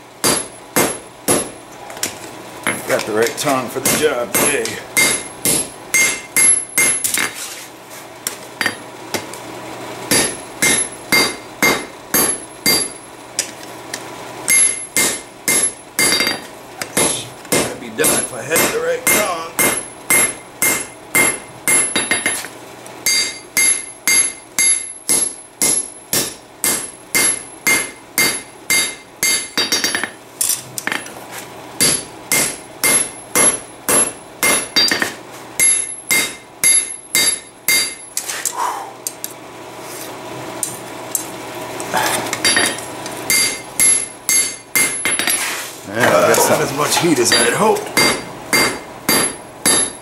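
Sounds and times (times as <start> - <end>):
hammer striking hot steel: 0.2 - 1.6, 2.6 - 7.4, 10.1 - 13.5, 14.5 - 31.1, 31.8 - 38.3, 42.3 - 45.5, 47.2 - 50.0
anvil ringing: 3.8 - 7.0, 10.1 - 13.0, 14.5 - 16.5, 23.0 - 30.1, 31.8 - 38.1, 42.4 - 45.2, 47.2 - 50.0.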